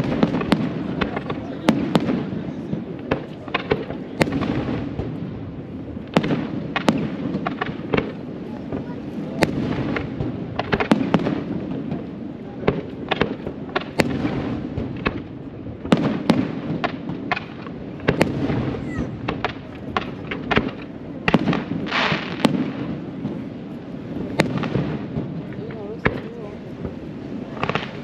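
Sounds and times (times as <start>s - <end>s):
crackling bursts: 0.0s - 28.0s
fireworks bangs and cracks: 0.0s - 28.0s.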